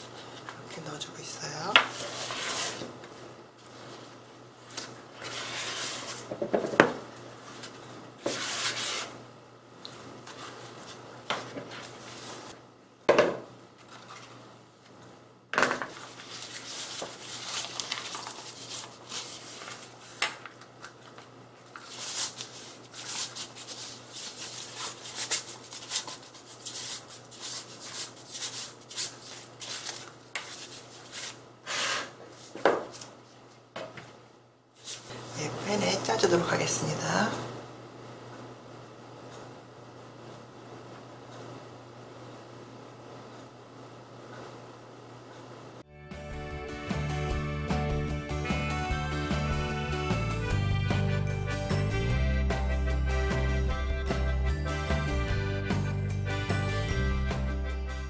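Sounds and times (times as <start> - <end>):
piping bag crinkling: 16.0 - 20.2, 20.9 - 31.4.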